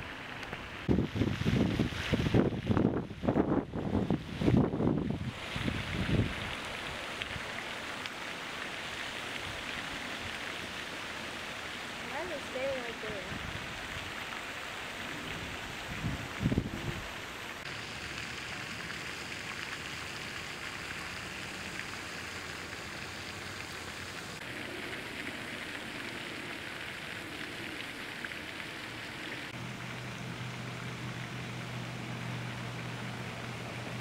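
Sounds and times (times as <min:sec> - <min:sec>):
fountain water splashing: 0:00.0 - 0:34.0
low steady hum: 0:11.6 - 0:34.0.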